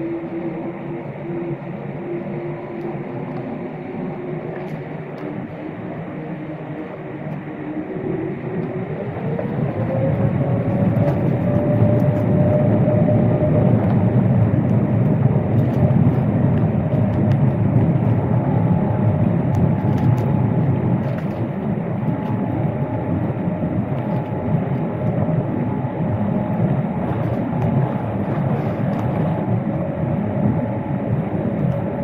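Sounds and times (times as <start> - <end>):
jet engines spooling up: 0.0 - 32.0.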